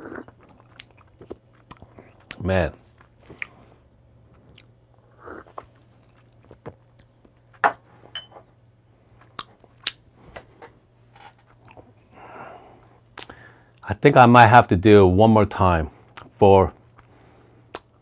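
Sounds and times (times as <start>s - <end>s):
short breath: 12.1s - 13.8s
lip smacks and tongue clicks: 13.1s - 13.8s, 17.7s - 18.0s.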